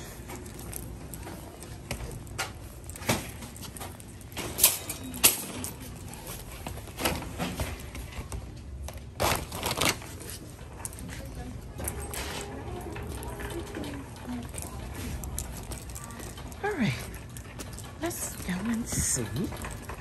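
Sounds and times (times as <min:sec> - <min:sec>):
wire shopping cart clanking: 0:00.0 - 0:08.4, 0:09.0 - 0:20.0
cloth bag rustling: 0:09.2 - 0:10.3.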